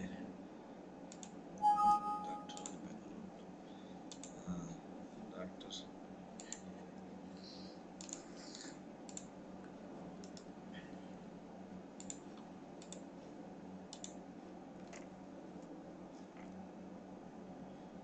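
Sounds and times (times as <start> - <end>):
faint low hum: 0.0 - 18.0
computer mouse clicking: 1.1 - 1.4, 4.1 - 4.4, 6.4 - 6.6, 8.0 - 9.3, 10.2 - 10.5, 12.0 - 12.2, 12.8 - 13.1, 13.9 - 14.2.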